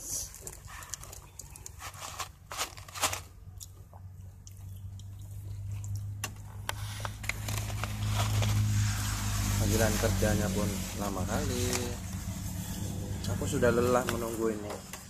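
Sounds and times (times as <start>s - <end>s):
chewing crunchy fried chicken: 0.1s - 8.7s
steady low hum: 3.2s - 15.0s.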